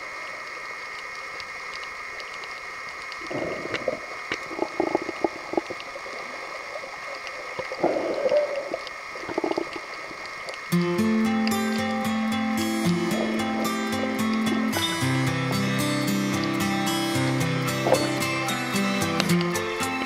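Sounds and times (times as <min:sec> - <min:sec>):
underwater bubbling: 0:00.0 - 0:15.2, 0:17.6 - 0:19.6
underwater hiss with faint hum: 0:00.0 - 0:19.5
music: 0:10.7 - 0:20.0.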